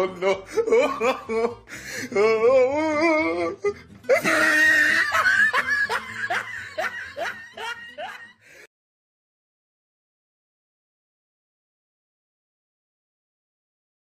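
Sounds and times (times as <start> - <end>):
person laughing hard: 0.0 - 8.7.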